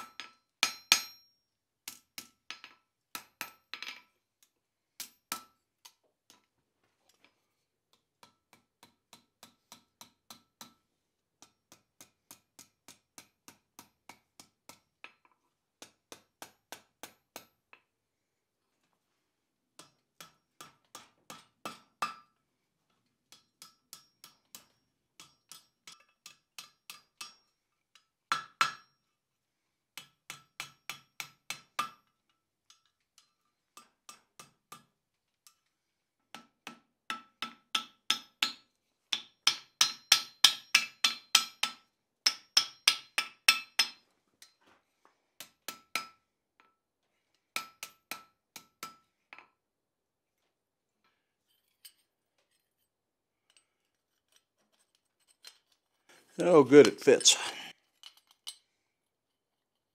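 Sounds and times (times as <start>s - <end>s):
hammer striking steel on anvil: 0.0s - 2.4s, 23.3s - 27.4s, 28.3s - 28.9s, 37.1s - 44.0s.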